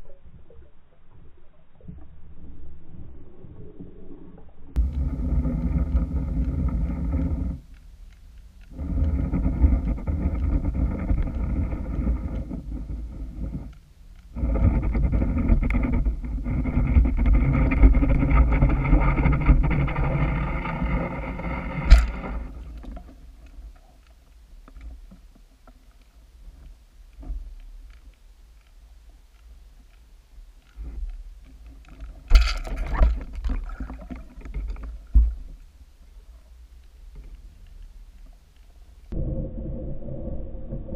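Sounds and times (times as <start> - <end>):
motor humming underwater: 0.0 - 25.7.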